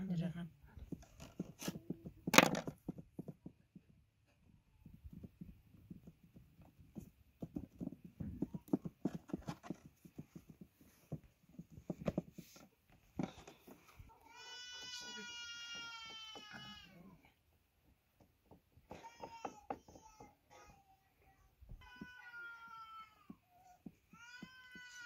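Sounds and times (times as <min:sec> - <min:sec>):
light knocks and taps: 0:04.8 - 0:14.1.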